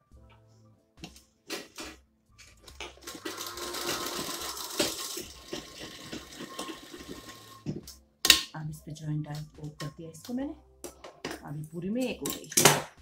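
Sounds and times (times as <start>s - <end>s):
sewing machine running: 3.0s - 7.7s.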